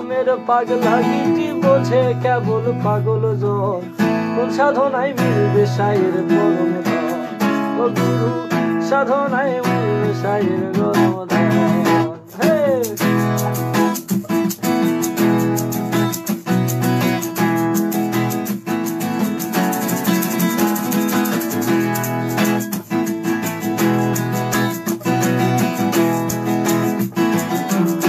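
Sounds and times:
person singing: 0:00.0 - 0:14.0, 0:25.0 - 0:28.0
acoustic guitar strumming: 0:00.0 - 0:28.0.

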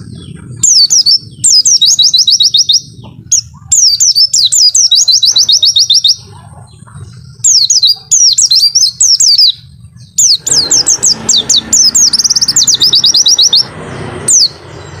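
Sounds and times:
bird singing whistled notes: 0:00.0 - 0:06.3, 0:07.4 - 0:15.0.

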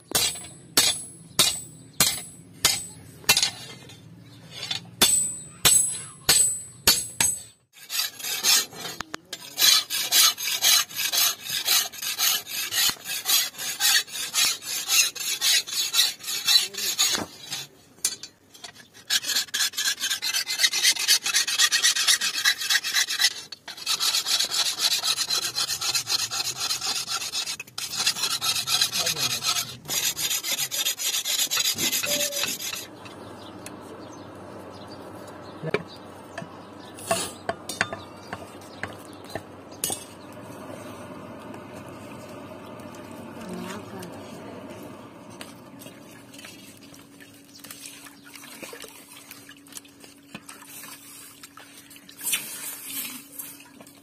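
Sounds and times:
file rasping on metal: 0:06.9 - 0:17.7, 0:18.9 - 0:32.9.

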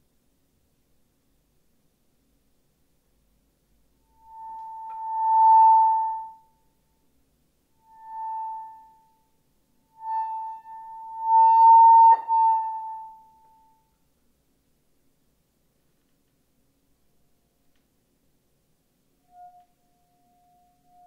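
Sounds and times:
high sustained tone: 0:04.1 - 0:06.6, 0:07.8 - 0:13.9, 0:19.2 - 0:21.0.

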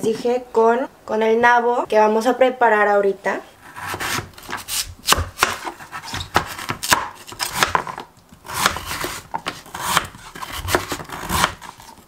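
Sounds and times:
knife slicing radish: 0:03.6 - 0:12.0.

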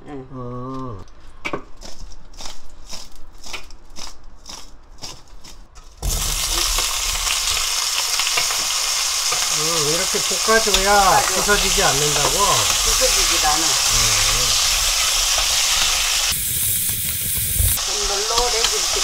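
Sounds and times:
potatoes sizzling in hot oil: 0:06.0 - 0:19.0.

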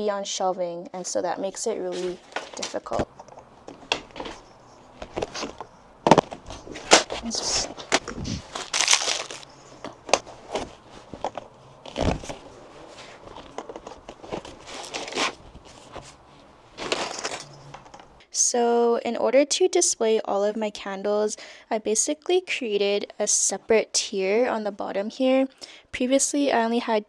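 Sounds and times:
rustling: 0:01.8 - 0:18.2
dull thump: 0:12.0 - 0:12.4.

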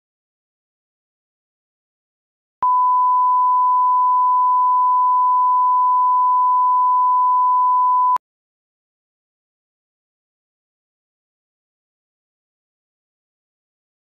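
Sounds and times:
sine test tone: 0:02.6 - 0:08.2.

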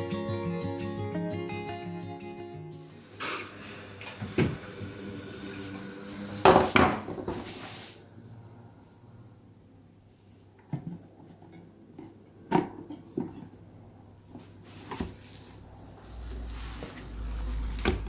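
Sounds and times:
rustling: 0:14.4 - 0:18.0.

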